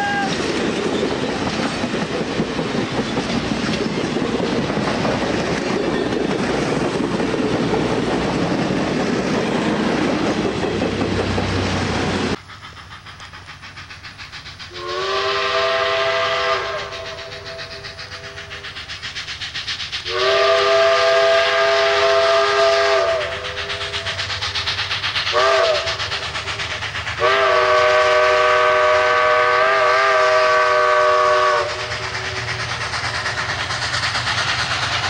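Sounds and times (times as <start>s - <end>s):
train cars rolling past: 0.0s - 35.0s
steam whistle chord: 14.7s - 18.6s, 20.0s - 24.0s, 25.3s - 25.9s, 27.2s - 31.9s.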